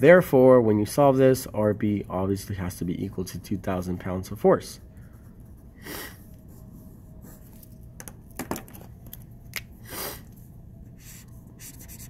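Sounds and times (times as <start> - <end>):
pens clicking and tapping: 8.0 - 9.7
pen stroking on paper: 11.0 - 12.0.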